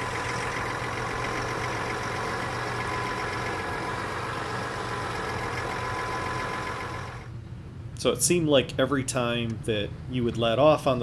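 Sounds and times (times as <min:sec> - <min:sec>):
diesel engine idling: 0:00.0 - 0:07.3
engine cooling fans running: 0:00.0 - 0:11.0.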